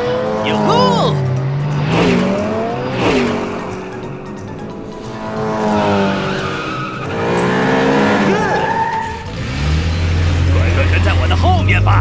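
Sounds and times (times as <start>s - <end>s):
background music: 0.0s - 12.0s
cartoon engines revving: 0.0s - 12.0s
tyre squeals: 5.9s - 10.6s.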